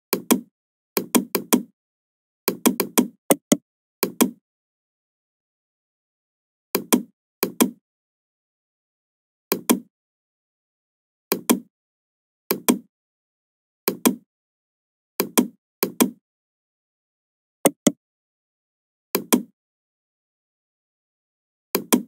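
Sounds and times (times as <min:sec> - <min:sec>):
computer mouse clicking: 0:17.7 - 0:18.0.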